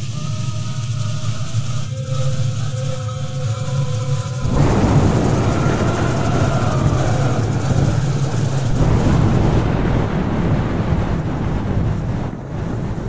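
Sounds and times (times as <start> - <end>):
faint wavering tones: 0.0 - 9.8
low steady hum: 0.0 - 13.0
rumbling rush of noise: 0.0 - 13.0.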